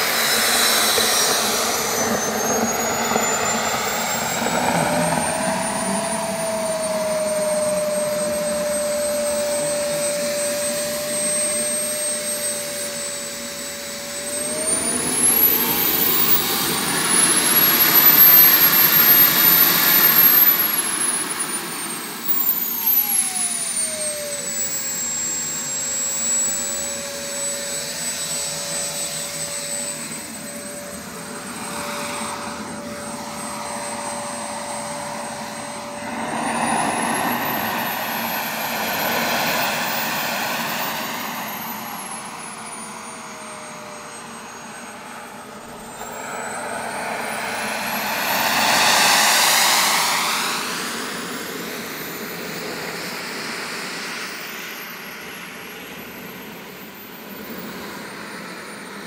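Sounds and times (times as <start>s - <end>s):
jet turbine whine and roar: 0.0s - 59.0s.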